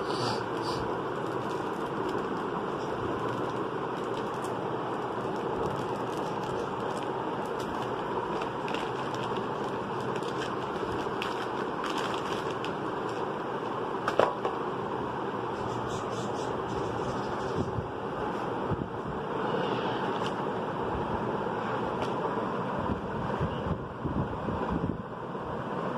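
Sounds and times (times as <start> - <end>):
plastic mailer bag crinkling: 1.0 - 14.4.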